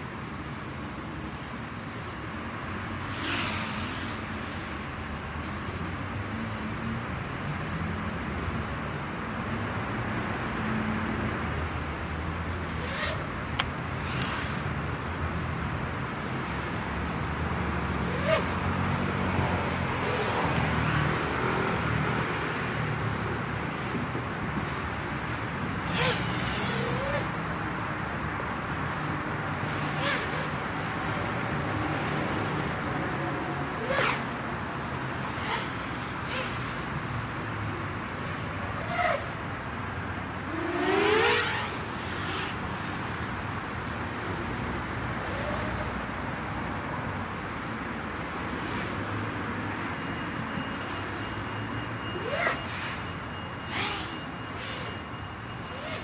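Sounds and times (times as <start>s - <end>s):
road traffic: 0.0s - 56.0s
drone motors whining: 25.8s - 27.4s, 50.3s - 56.0s.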